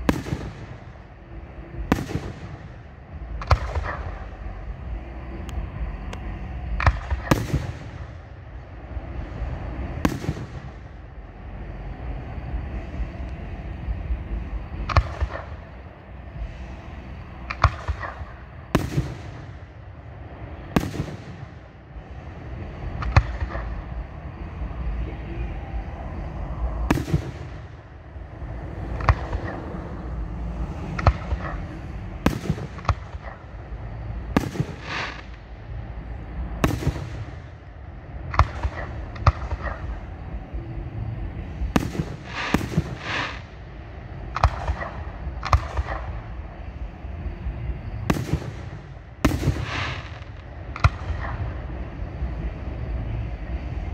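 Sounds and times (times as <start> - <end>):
low rumble: 0.0 - 53.9.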